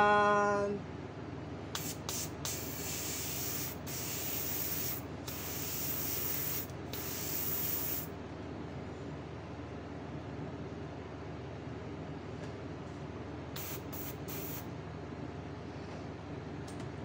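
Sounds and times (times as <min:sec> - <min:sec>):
airbrush spraying hiss: 0:01.8 - 0:08.1, 0:13.6 - 0:14.7.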